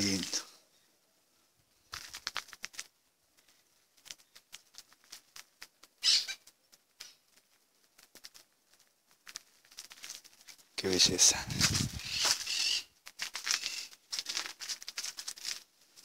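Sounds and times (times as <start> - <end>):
faint clicking and rustling: 1.8 - 10.8, 13.0 - 16.0
scratchy rustle: 1.9 - 16.0.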